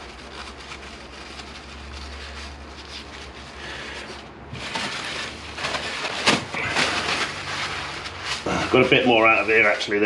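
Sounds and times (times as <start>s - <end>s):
paper tissue rustling: 0.0s - 10.0s
handling noise: 4.0s - 9.0s.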